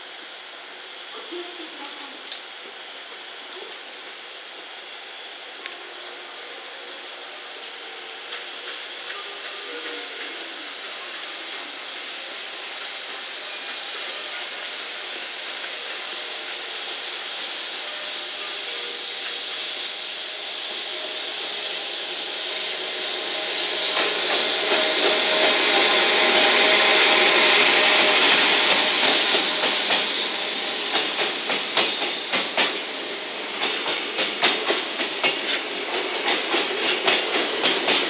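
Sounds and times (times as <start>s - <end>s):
electric locomotive passing: 0.0s - 38.0s
wheels clacking over rail joints: 33.6s - 38.0s.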